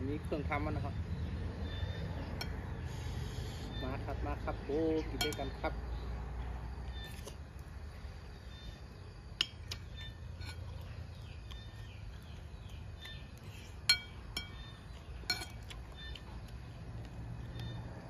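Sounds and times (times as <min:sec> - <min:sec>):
metal spoon clinking on plate: 0:05.1 - 0:05.6, 0:13.9 - 0:14.6, 0:15.2 - 0:15.6.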